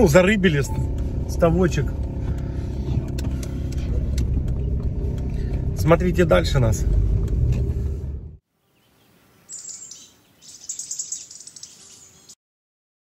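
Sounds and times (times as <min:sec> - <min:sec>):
car engine and road rumble: 0:00.0 - 0:08.4
small birds chirping: 0:08.6 - 0:12.4.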